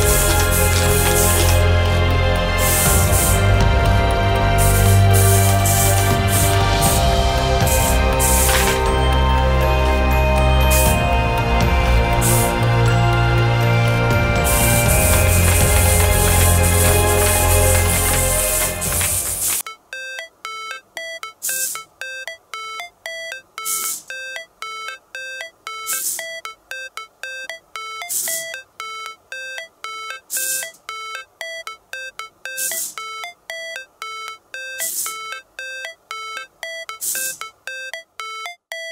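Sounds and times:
electronic music with bleeping notes: 0.0 - 38.9
hissy percussion hit: 2.5 - 9.6, 10.6 - 19.6.

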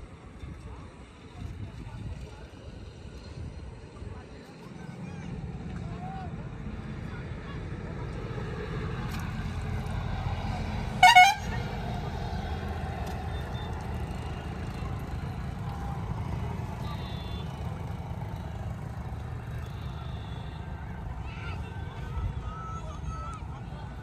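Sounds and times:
bus horn blast: 10.9 - 11.7.

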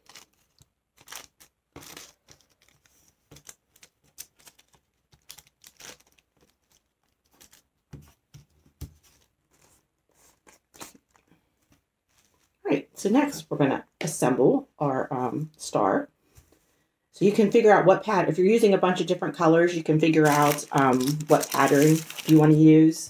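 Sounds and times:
paper crinkling and rustling: 0.0 - 12.6, 20.2 - 22.8.

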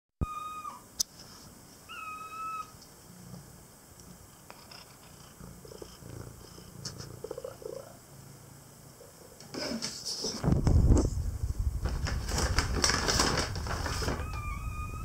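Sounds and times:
cat meowing high-pitched: 0.2 - 0.9, 1.9 - 2.7, 14.0 - 15.0
cat purring: 3.1 - 15.0.

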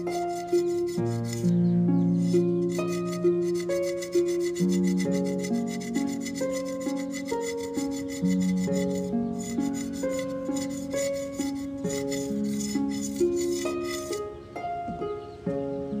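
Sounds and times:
plucked instrumental melody: 0.0 - 16.0.

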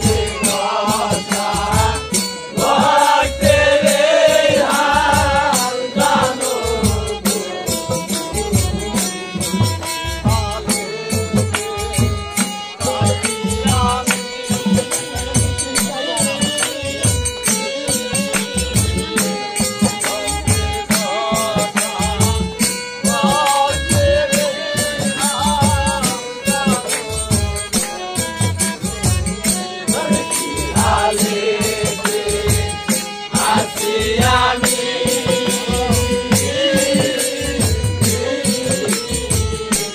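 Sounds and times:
steady drum beat: 0.0 - 39.9
person singing: 10.1 - 18.4.

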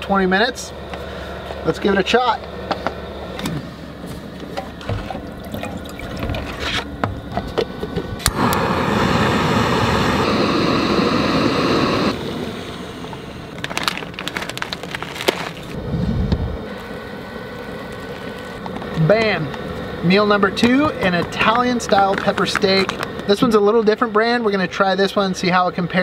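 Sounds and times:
gas burner hissing: 0.2 - 14.9, 15.5 - 25.6
foil pouch crinkling: 13.5 - 15.8, 17.5 - 19.0, 21.4 - 23.3.

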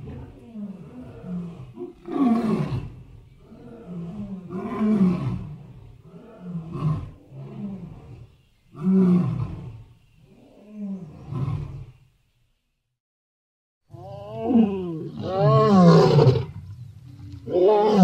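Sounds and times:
lion roaring and growling: 0.0 - 9.8.

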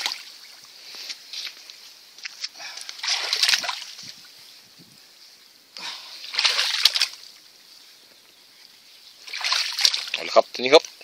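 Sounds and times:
muddy water sloshing and splashing: 0.0 - 1.6, 2.2 - 4.6, 5.8 - 7.6, 9.1 - 11.0.

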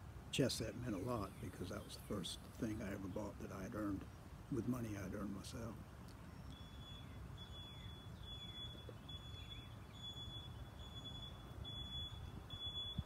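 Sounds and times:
truck backup alarm beeping: 6.6 - 13.0.

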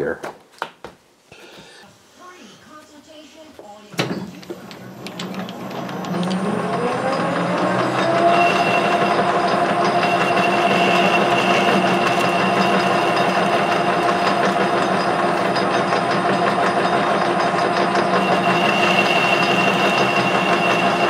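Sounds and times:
metal lathe whine: 4.7 - 21.0.

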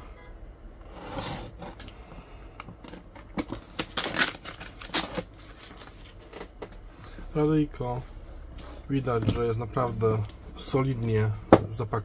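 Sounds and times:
adhesive label ripping: 3.3 - 5.3.

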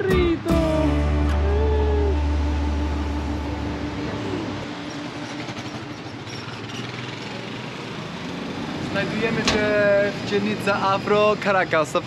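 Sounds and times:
background music: 0.0 - 5.5
city street traffic: 0.0 - 12.0.

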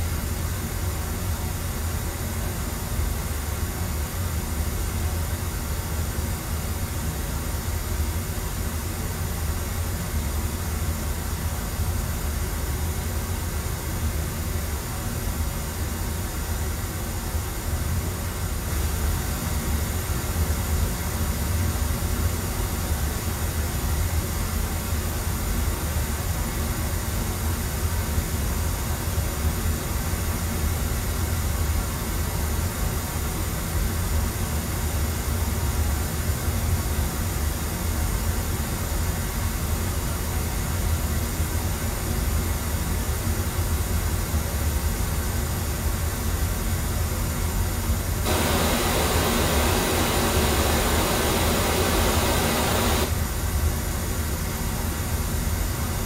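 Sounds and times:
pink noise through speakers: 48.2 - 53.2.

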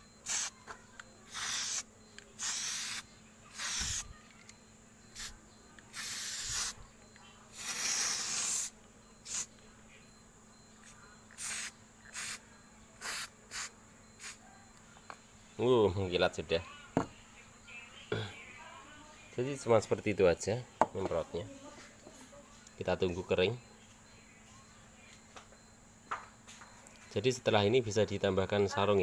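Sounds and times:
spray can hissing bursts: 0.2 - 0.5, 1.3 - 1.8, 2.4 - 4.0, 5.9 - 6.8, 7.5 - 9.5, 11.4 - 12.4, 13.0 - 14.4.

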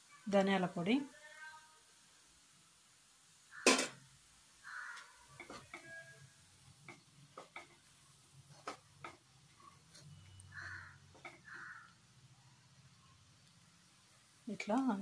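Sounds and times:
spatula scraping pan: 5.4 - 6.3
spatula knocking on pan: 11.1 - 11.7.

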